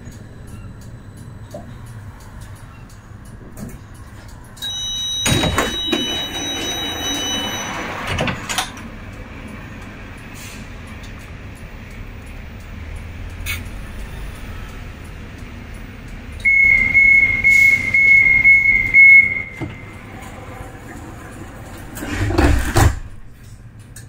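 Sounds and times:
low hum of tram: 0:00.0 - 0:24.0
high pulsing warning beeps: 0:04.6 - 0:08.3, 0:16.4 - 0:20.1
door clunk and rattle: 0:05.2 - 0:07.3, 0:20.4 - 0:23.3.

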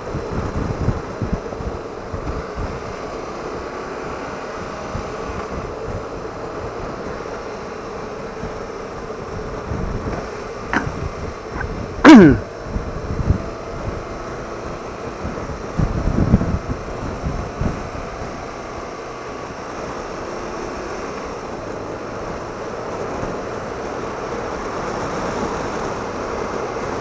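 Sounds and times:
motorcycle engine running: 0:00.0 - 0:27.0
wind rush on microphone: 0:00.0 - 0:27.0
vocal sound falling in pitch: 0:10.8 - 0:11.0, 0:11.6 - 0:12.4.

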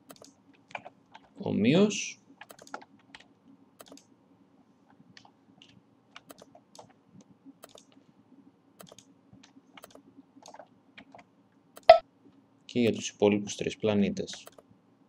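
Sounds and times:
computer mouse and keyboard clicks: 0:00.0 - 0:01.4, 0:02.4 - 0:04.1, 0:05.1 - 0:07.0, 0:07.6 - 0:08.0, 0:08.8 - 0:12.0, 0:14.3 - 0:14.7
low steady hum: 0:00.0 - 0:15.0.

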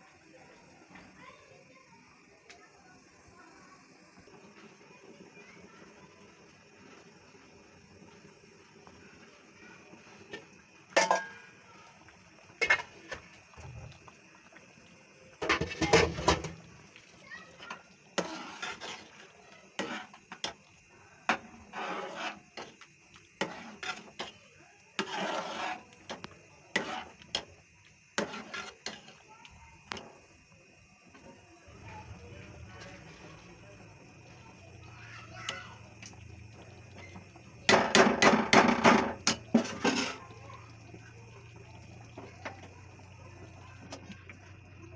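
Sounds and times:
dal boiling: 0:00.0 - 0:44.9
spoon clanking against pot: 0:10.9 - 0:11.4
utensil scraping a cooking pot: 0:12.6 - 0:13.3, 0:15.4 - 0:16.6, 0:17.6 - 0:29.2, 0:37.0 - 0:40.3.

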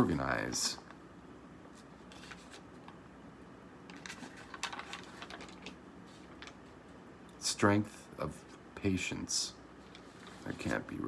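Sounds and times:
faint clicks and rustles: 0:01.6 - 0:03.0, 0:03.8 - 0:07.4, 0:09.8 - 0:11.0.

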